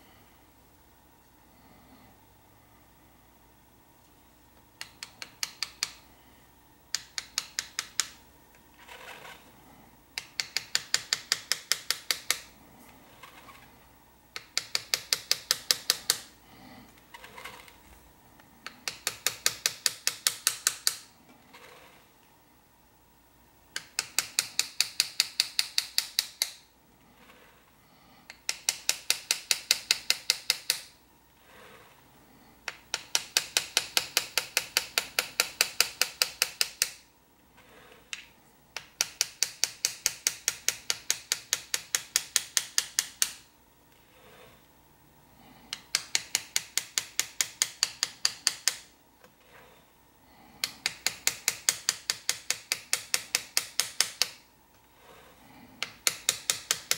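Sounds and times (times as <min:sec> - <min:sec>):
hammer tapping chisel on metal: 0:04.8 - 0:06.0, 0:06.9 - 0:08.2, 0:10.2 - 0:12.5, 0:14.3 - 0:16.3, 0:18.6 - 0:21.1, 0:23.8 - 0:26.6, 0:28.3 - 0:30.9, 0:32.6 - 0:37.0, 0:38.1 - 0:43.5, 0:45.7 - 0:48.9, 0:50.6 - 0:54.4, 0:55.8 - 0:56.9.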